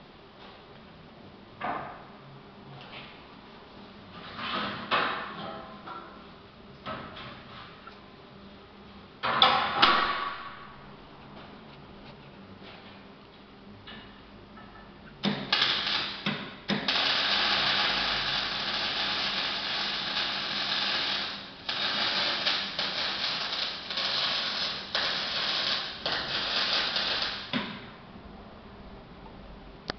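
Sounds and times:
arc welding sizzle: 15.2s - 27.6s.

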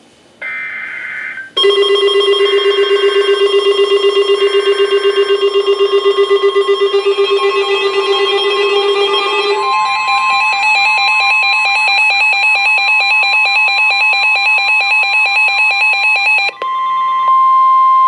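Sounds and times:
rapidly pulsing alarm tone: 0.4s - 16.6s
screeching digital data bursts: 4.6s - 12.6s.

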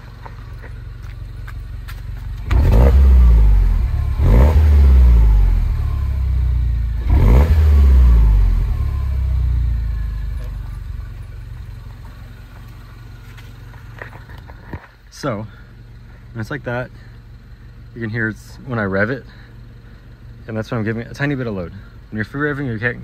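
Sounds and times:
car engine idling: 0.0s - 23.0s
car engine revving: 1.0s - 14.3s.

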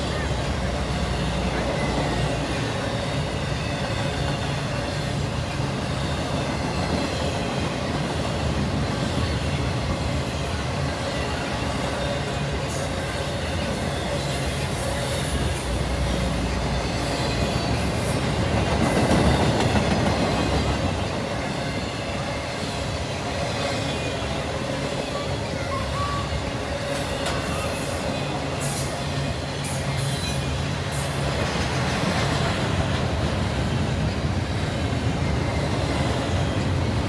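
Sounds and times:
freight train wheels rumbling on rail: 0.0s - 37.0s.

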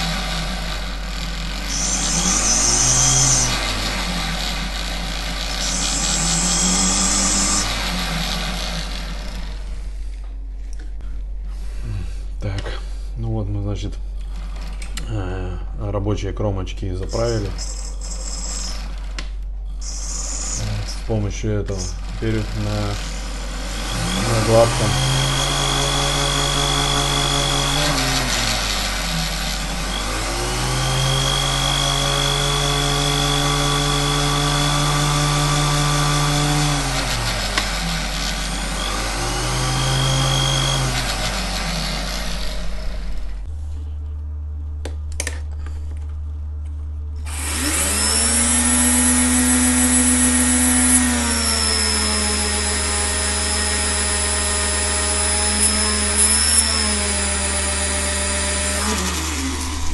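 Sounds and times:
grinding hiss: 0.0s - 9.7s, 17.0s - 18.9s, 19.7s - 43.4s
micromotor running: 0.0s - 9.8s, 17.0s - 43.5s, 47.2s - 59.9s
motor spinning with hum and whine: 0.0s - 16.0s, 16.7s - 59.9s.

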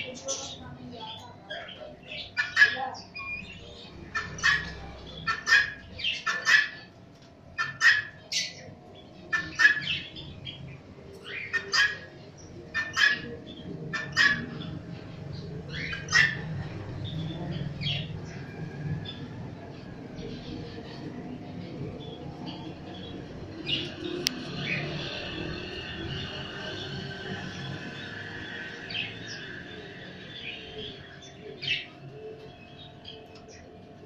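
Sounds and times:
ducks calling harshly: 2.3s - 3.0s, 4.1s - 6.9s, 7.6s - 8.3s, 9.3s - 10.0s, 11.5s - 12.1s, 12.7s - 13.3s, 13.9s - 14.7s.

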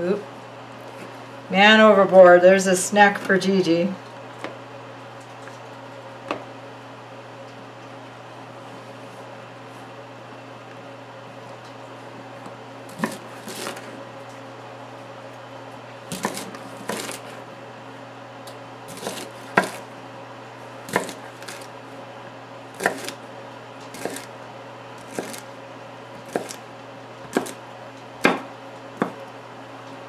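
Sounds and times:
steady low hum: 0.0s - 30.0s
knife chopping on wooden board: 12.9s - 13.9s, 16.1s - 17.4s, 18.9s - 19.8s, 20.9s - 21.7s, 22.8s - 23.2s, 23.9s - 24.3s, 25.0s - 25.5s, 26.2s - 26.6s, 27.3s - 27.6s, 28.2s - 29.2s.

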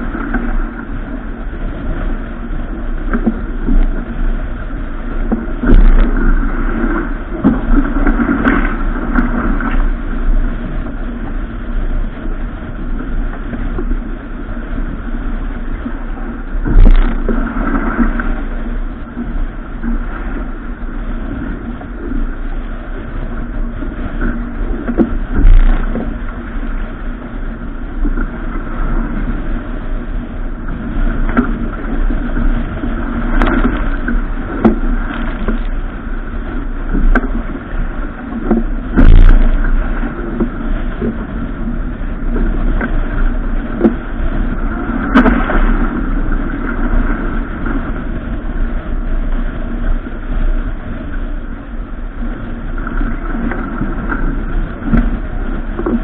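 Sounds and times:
wind and water rushing: 0.0s - 56.0s
heavy thumps of boat: 38.4s - 41.2s.

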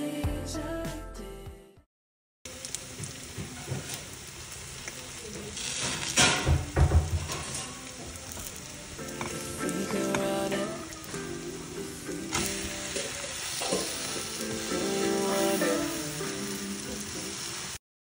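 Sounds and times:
background music: 0.0s - 1.8s, 8.2s - 17.6s
pancake sizzling in frying pan: 2.5s - 17.8s.

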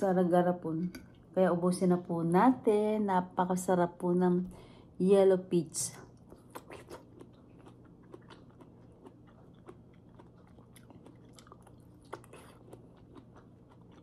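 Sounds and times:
wet chewing: 6.2s - 14.0s
mouth clicks and smacks: 6.3s - 13.4s.

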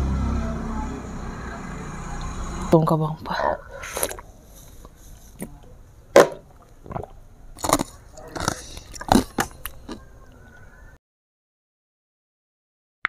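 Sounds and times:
eating mouth sounds: 3.8s - 5.6s, 6.3s - 10.5s.

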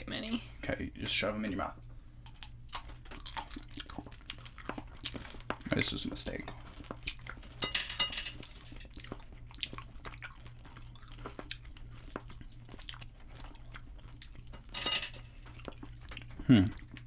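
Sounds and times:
low steady hum: 0.0s - 17.0s
chewing candy: 2.2s - 7.6s, 8.8s - 14.7s, 15.3s - 17.0s.

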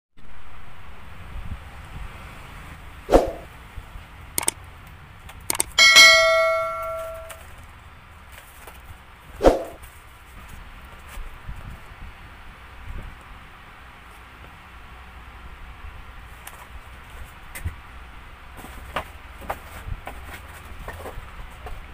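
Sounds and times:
mouse clicks: 5.5s - 5.8s
bell-like ding: 5.8s - 7.4s.

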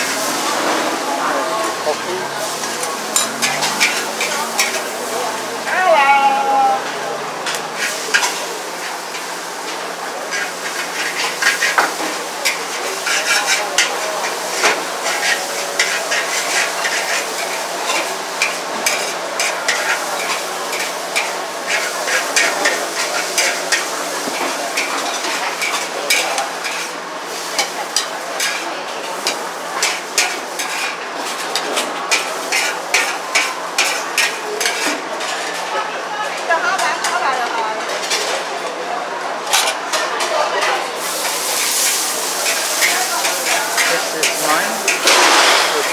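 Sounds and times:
noodles sizzling in a wok: 0.0s - 38.2s, 39.5s - 45.9s
metal spatula scraping a wok: 2.5s - 5.1s, 7.8s - 9.3s, 10.3s - 28.6s, 29.2s - 35.0s, 41.0s - 45.9s.

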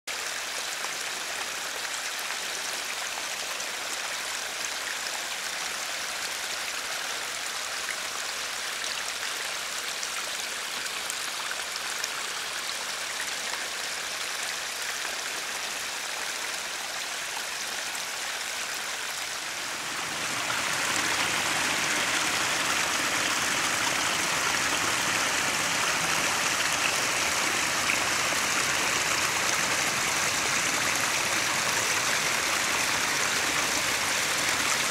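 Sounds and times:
brook trickling and splashing: 0.1s - 34.9s.

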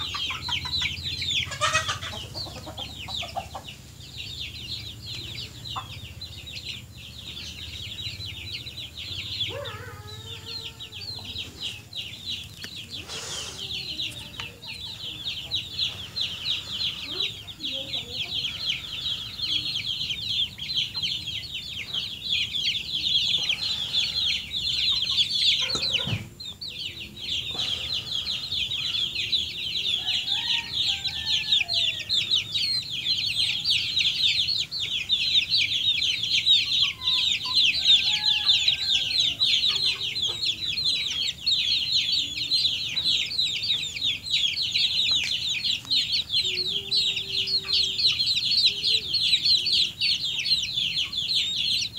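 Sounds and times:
chickens clucking and calling: 0.0s - 51.9s
chicks peeping: 0.0s - 51.9s.

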